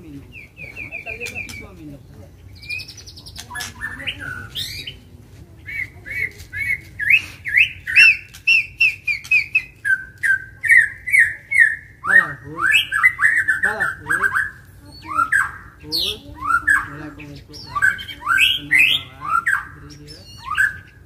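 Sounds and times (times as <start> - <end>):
bird singing sliding whistled notes: 6.6 - 21.0.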